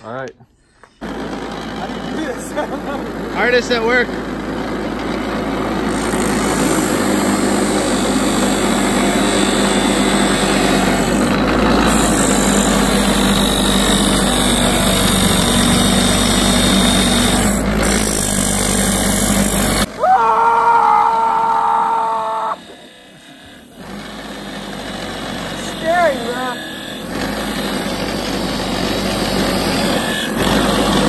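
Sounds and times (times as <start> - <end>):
bench grinder grinding: 1.0 - 31.0
rooster crowing: 20.0 - 22.6.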